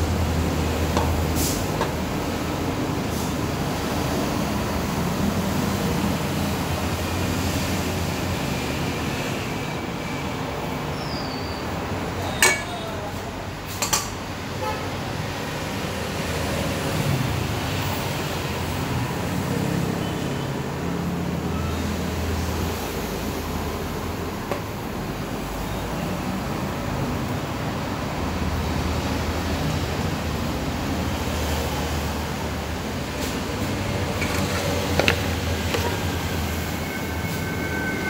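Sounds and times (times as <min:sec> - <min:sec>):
metal utensils clinking on cookware: 0:12.3 - 0:12.9.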